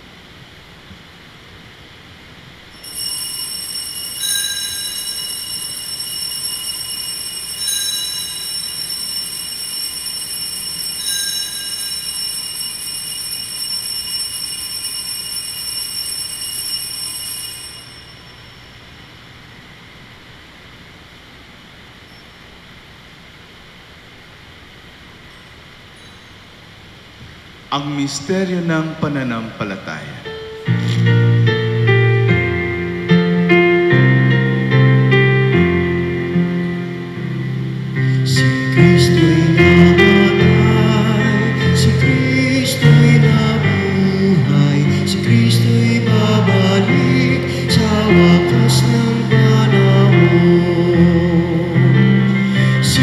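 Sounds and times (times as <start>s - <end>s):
altar bells ringing: 2.8s - 19.0s, 25.3s - 26.8s, 35.9s - 53.0s.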